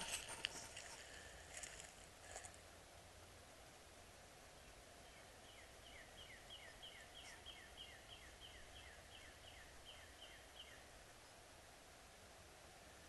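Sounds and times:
songbird singing: 4.0 - 11.4.

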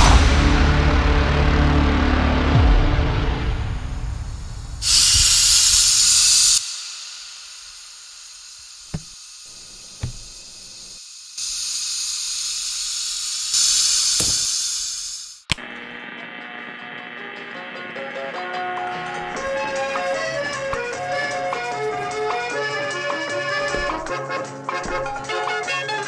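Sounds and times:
music: 0.0 - 5.6, 15.6 - 26.0
pressure cooker steam hissing: 4.8 - 15.5, 19.4 - 26.0
light knocks: 8.9 - 10.8.

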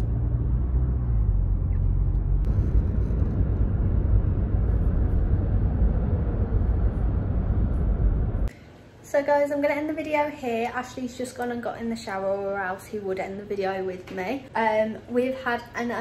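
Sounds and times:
engine and road rumble in car: 0.0 - 8.5.

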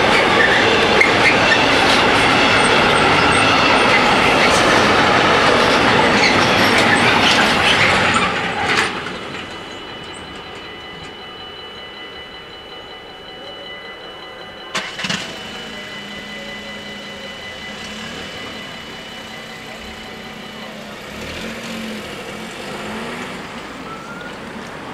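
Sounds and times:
level crossing bells ringing: 0.0 - 24.9
car engine pulling away: 14.7 - 24.9.

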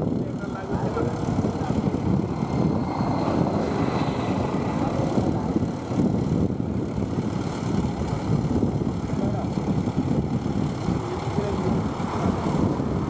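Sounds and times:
tractor diesel engine droning: 0.0 - 9.0.

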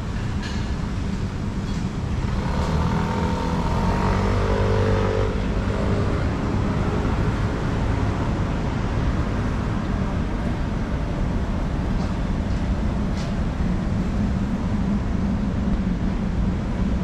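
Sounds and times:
traffic rumble: 0.0 - 17.0.

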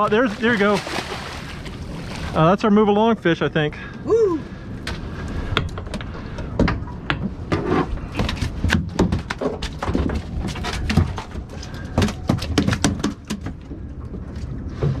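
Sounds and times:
fish and net knocking on boat deck: 12.0 - 13.6.

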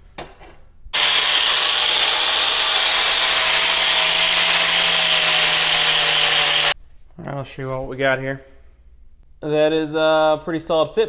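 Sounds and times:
electric grinder grinding steel: 1.0 - 6.8.

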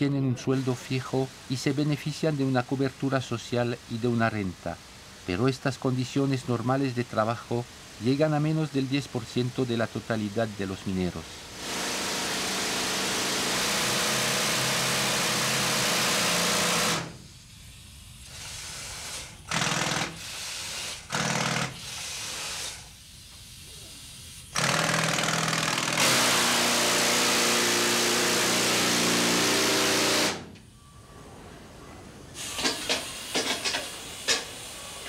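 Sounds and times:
pneumatic rock drill hammering: 11.5 - 17.2, 18.2 - 23.4, 24.5 - 30.6, 32.4 - 34.8.

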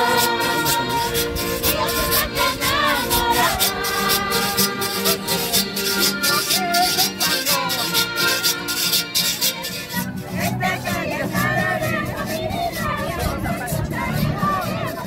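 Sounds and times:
sustained melody notes: 0.0 - 14.1.

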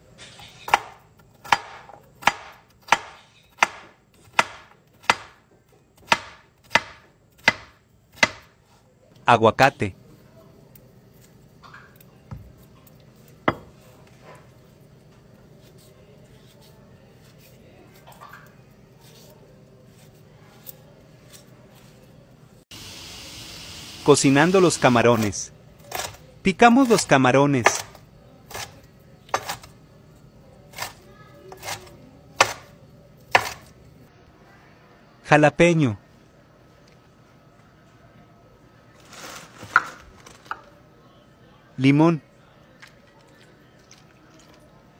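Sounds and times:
knife chopping on cutting board: 0.7 - 5.4, 6.0 - 8.5, 26.8 - 29.7, 30.7 - 32.7, 33.3 - 33.7.

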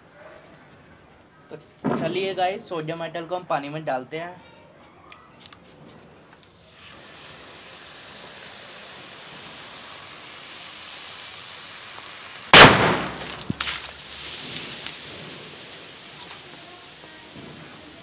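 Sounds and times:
hissing and fizzing in water: 6.4 - 18.0
loud explosion bang: 12.6 - 13.7.

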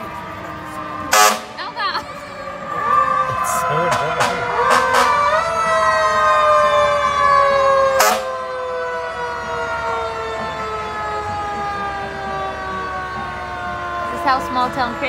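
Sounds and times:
fire engine siren: 0.0 - 15.0
short sharp horn blasts: 1.1 - 1.6.

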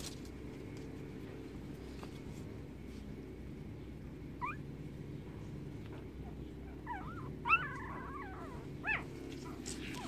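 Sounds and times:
puppies whining and squeaking: 4.4 - 4.8, 5.8 - 10.0.

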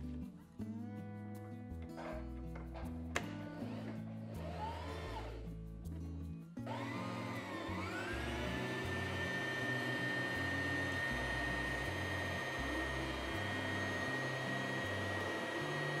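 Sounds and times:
background music: 0.0 - 16.0
sewing machine motor whine: 3.6 - 5.4, 6.7 - 16.0.

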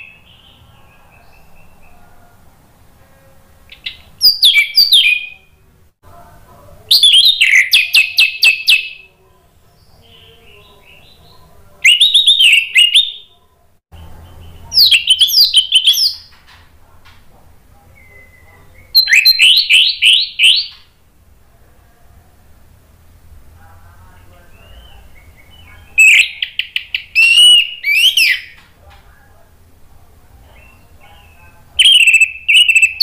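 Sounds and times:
thrush singing whistled notes: 11.8 - 13.3, 18.0 - 20.9, 24.5 - 28.6, 30.6 - 33.0.

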